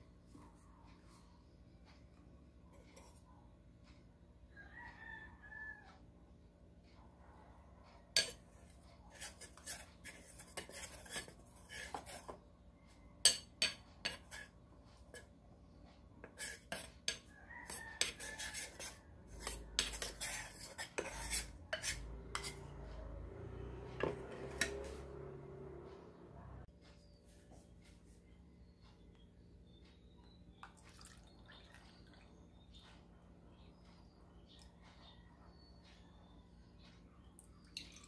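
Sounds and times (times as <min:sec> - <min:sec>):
spoon clinking against ceramic bowl: 0:13.2 - 0:14.4.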